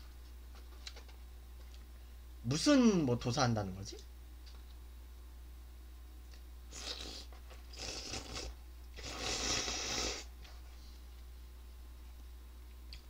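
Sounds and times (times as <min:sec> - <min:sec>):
person eating noisily: 0:06.7 - 0:10.3.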